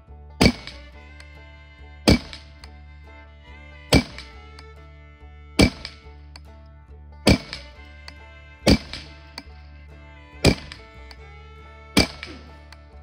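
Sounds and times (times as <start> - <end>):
background music: 0.0 - 13.0
rifle shots: 7.3 - 7.6.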